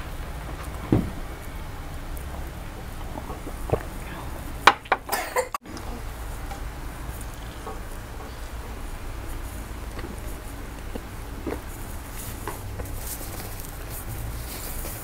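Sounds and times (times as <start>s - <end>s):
steady low hum: 0.0s - 15.0s
faint chewing: 5.7s - 15.0s.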